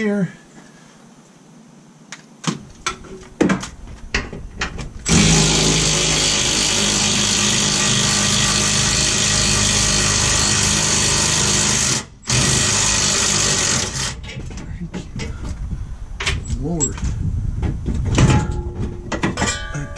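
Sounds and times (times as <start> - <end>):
metal knocks and clanks: 2.5 - 6.1, 14.1 - 15.6, 16.2 - 19.9
handheld power tool running: 5.1 - 14.2.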